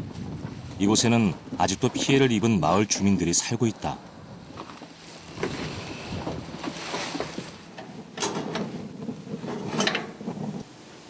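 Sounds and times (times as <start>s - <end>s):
door rustling and scraping: 4.4s - 10.7s.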